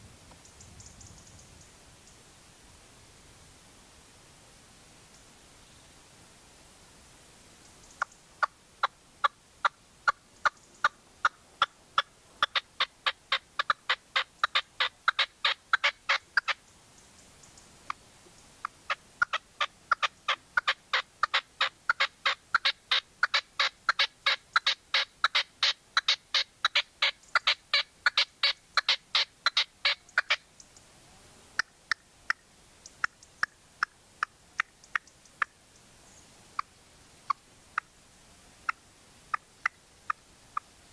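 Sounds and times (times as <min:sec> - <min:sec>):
partridge calling sharp notes: 0:09.6 - 0:16.6.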